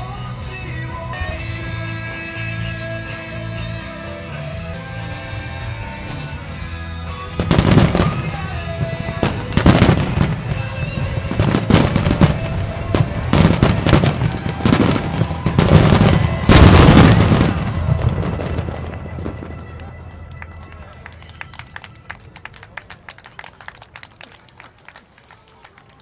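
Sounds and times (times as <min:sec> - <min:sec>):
music: 0:00.0 - 0:22.5
fireworks bursting and crackling: 0:07.4 - 0:20.1.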